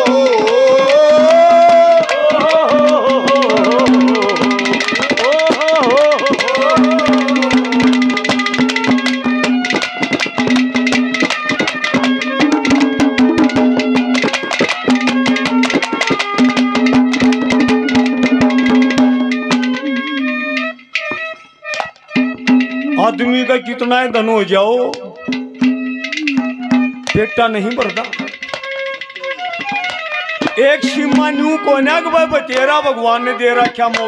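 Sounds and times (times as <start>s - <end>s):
fast hand drum strokes: 0.0s - 21.2s, 21.8s - 23.4s, 25.2s - 31.9s
wavering melody: 0.0s - 34.0s
held drone note: 17.1s - 21.2s, 22.2s - 23.4s, 25.1s - 27.1s.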